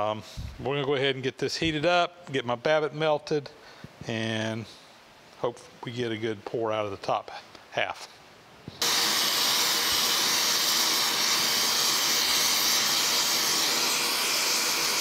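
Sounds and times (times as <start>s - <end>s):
gas torch flame hissing: 8.8s - 15.0s.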